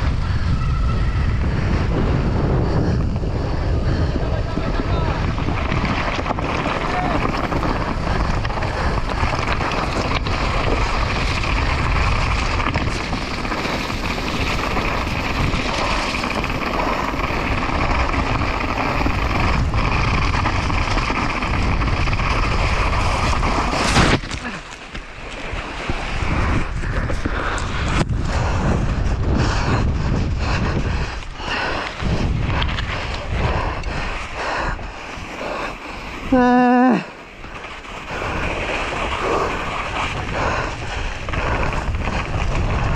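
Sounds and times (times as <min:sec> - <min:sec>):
wind rushing over microphone: 0:00.0 - 0:42.9
mountain bike rattling over rocks: 0:03.7 - 0:42.9.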